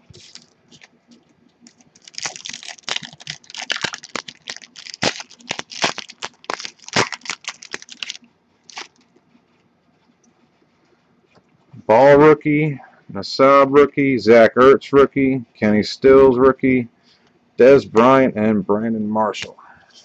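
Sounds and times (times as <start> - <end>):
foil wrapper tearing and crinkling: 0.1 - 0.9, 1.6 - 9.0.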